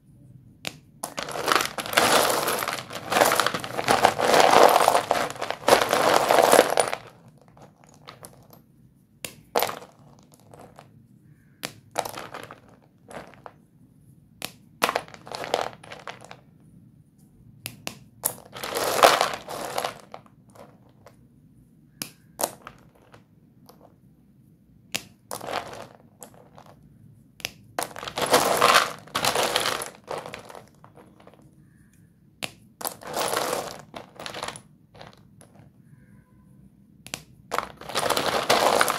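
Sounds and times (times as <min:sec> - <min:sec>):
chalk sticks clattering: 0:01.0 - 0:08.6, 0:27.8 - 0:31.4, 0:32.8 - 0:35.7, 0:37.5 - 0:38.9.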